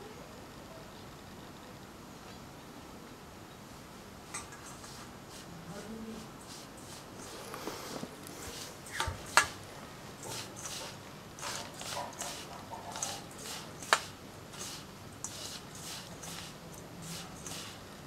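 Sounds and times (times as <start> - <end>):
gritty rustle of crumbs rubbed: 4.6 - 9.6, 10.2 - 17.8.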